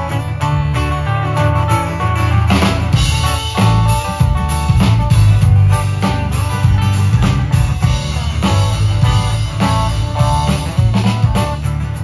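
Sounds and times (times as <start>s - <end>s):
live band playing: 0.0s - 12.0s.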